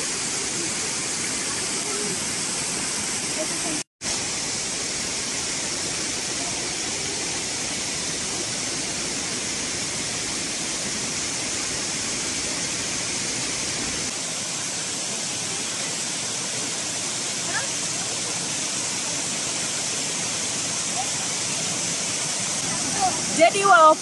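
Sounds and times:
waterfall rushing over rocks: 0:00.0 - 0:24.0.

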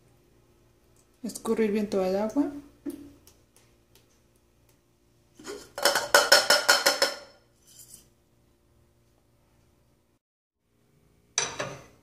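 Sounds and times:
saucepan and lid rattling: 0:05.4 - 0:07.4.

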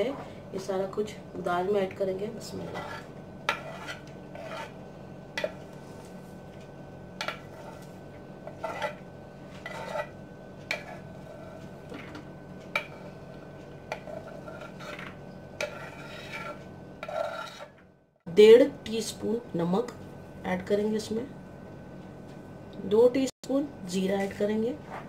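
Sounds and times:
scraping on wooden chopping board: 0:02.6 - 0:04.8, 0:07.2 - 0:12.2, 0:13.9 - 0:17.8.

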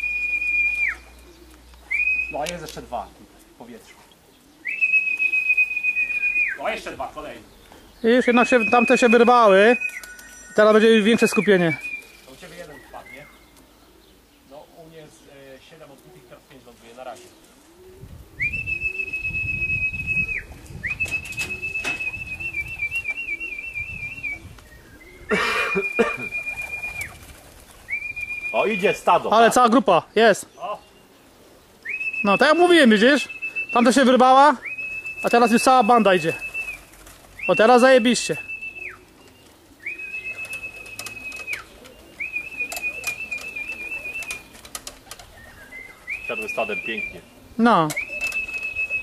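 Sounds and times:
long high whistle: 0:00.0 - 0:01.1, 0:04.7 - 0:06.6
pigeons cooing: 0:00.0 - 0:49.0
wings flapping: 0:04.6 - 0:07.8, 0:08.4 - 0:13.7, 0:16.0 - 0:24.7, 0:25.3 - 0:29.8, 0:31.8 - 0:49.0
sharp clicks: 0:40.2 - 0:45.3.

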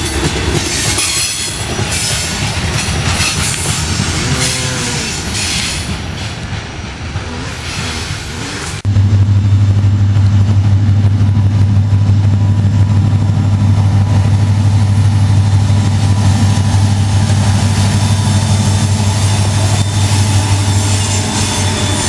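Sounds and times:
diesel locomotive engine drone: 0:00.0 - 0:22.0
wheel and rail noise: 0:00.0 - 0:22.0.

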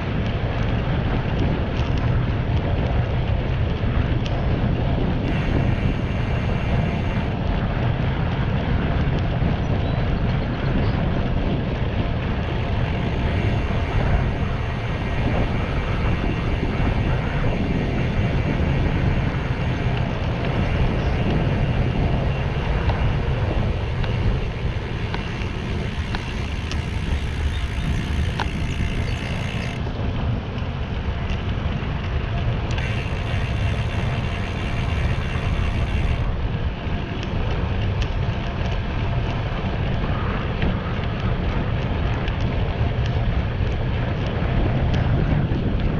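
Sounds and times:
tyre noise on asphalt: 0:00.0 - 0:45.9
wind buffeting microphone: 0:00.0 - 0:45.9
faint ticks: 0:00.1 - 0:04.4, 0:12.2 - 0:29.9, 0:30.5 - 0:36.4, 0:37.0 - 0:45.9.

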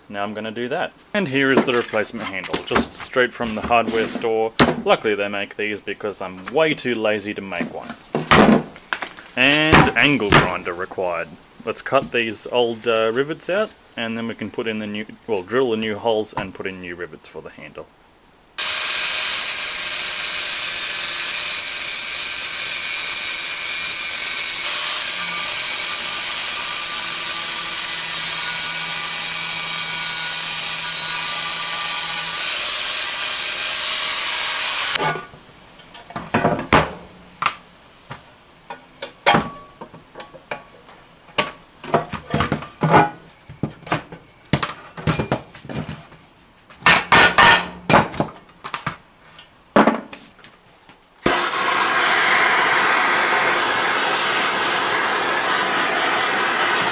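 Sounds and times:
angle grinder cutting metal: 0:18.6 - 0:35.1, 0:51.3 - 0:56.9
hand tools clanking on metal: 0:46.9 - 0:48.3.

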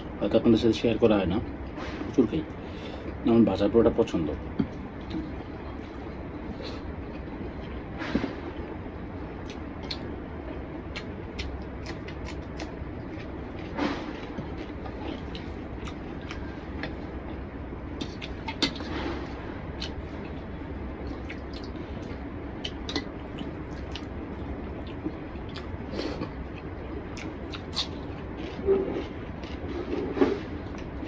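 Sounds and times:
steady low hum: 0:00.0 - 0:31.0
chewing and mouth clicks: 0:10.9 - 0:17.0, 0:18.0 - 0:18.8, 0:19.8 - 0:30.0.

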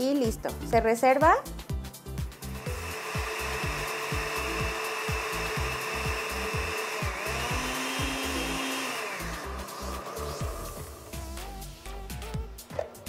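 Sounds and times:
blender motor whine: 0:02.4 - 0:11.8.

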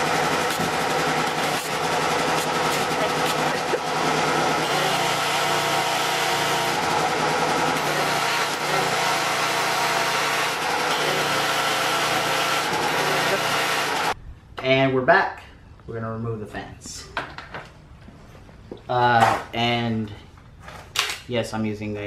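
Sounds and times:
pressure washer running: 0:00.0 - 0:14.2.

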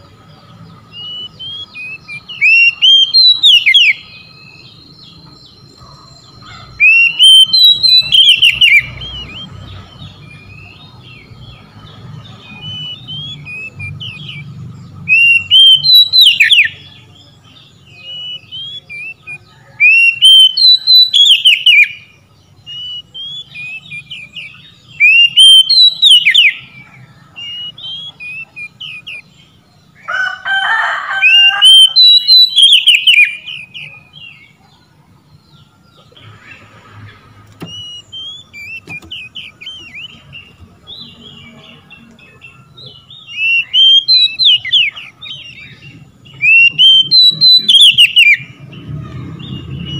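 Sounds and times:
bird singing whistled notes: 0:00.8 - 0:30.0, 0:31.3 - 0:36.7, 0:37.6 - 0:49.9
bird rasping call: 0:00.9 - 0:11.4, 0:36.0 - 0:49.9.

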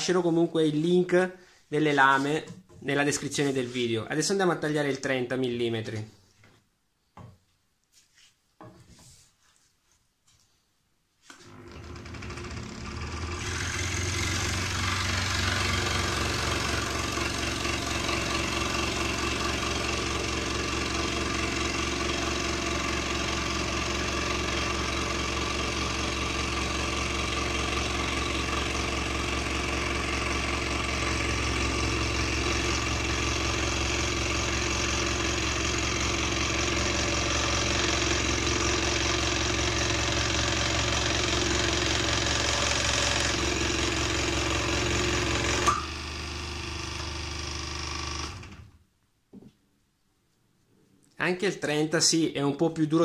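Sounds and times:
scroll saw cutting wood: 0:11.2 - 0:48.7.

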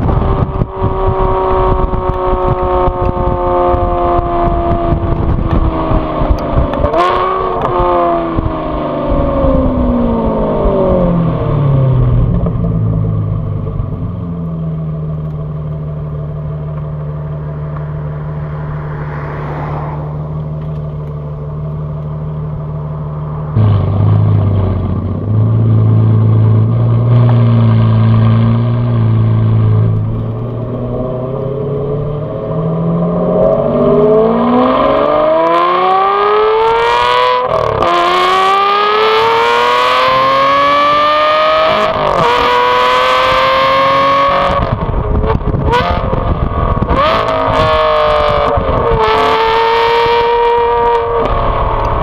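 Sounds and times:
car engine revving: 0:00.0 - 0:52.0
car swishing past: 0:17.4 - 0:21.8.

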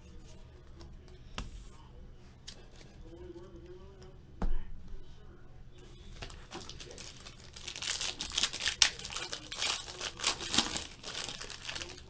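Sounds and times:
foil card pack tearing and crinkling: 0:06.4 - 0:12.0.

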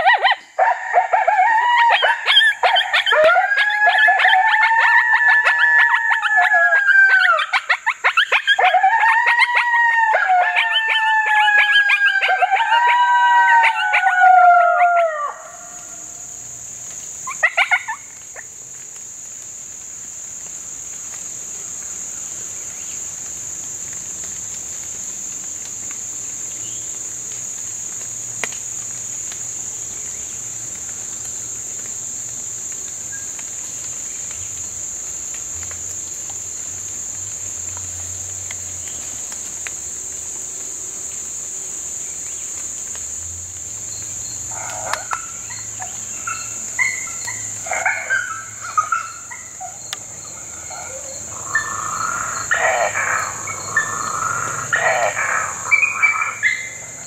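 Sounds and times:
mouth-blown howler: 0:00.0 - 0:07.6, 0:08.4 - 0:16.0, 0:44.5 - 0:57.0
electronic coyote howls and yips: 0:00.0 - 0:15.7, 0:50.6 - 0:56.8
high insect drone: 0:00.0 - 0:57.0.

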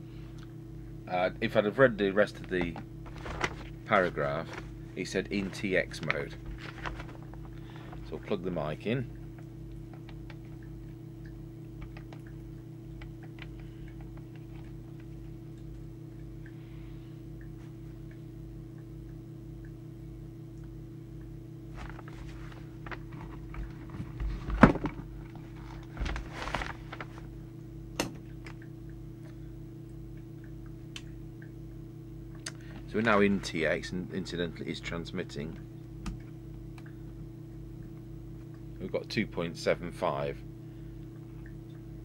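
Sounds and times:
low hum: 0:00.0 - 0:42.0
microphone cord rustling and knocking: 0:02.4 - 0:08.1, 0:21.8 - 0:27.3.

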